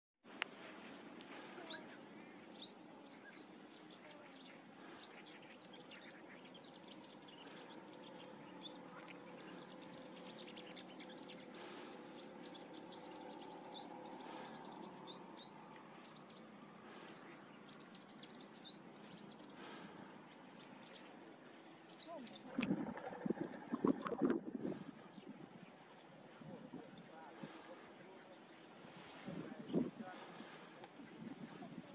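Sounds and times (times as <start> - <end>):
bird singing high chirps: 1.6 - 16.4, 17.0 - 21.1, 21.9 - 24.1.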